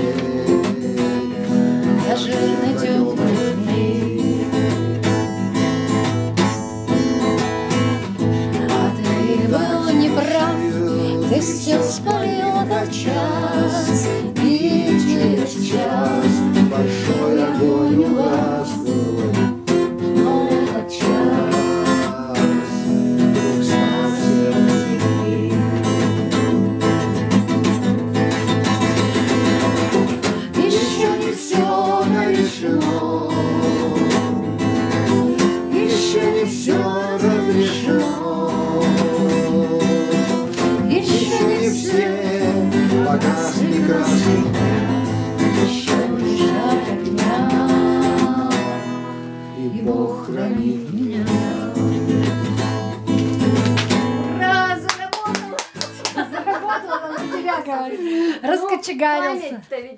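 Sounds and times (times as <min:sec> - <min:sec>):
man singing: 0:00.0 - 0:05.3, 0:08.1 - 0:26.7, 0:30.4 - 0:34.6, 0:35.2 - 0:52.5
strummed acoustic guitar: 0:00.0 - 0:58.4.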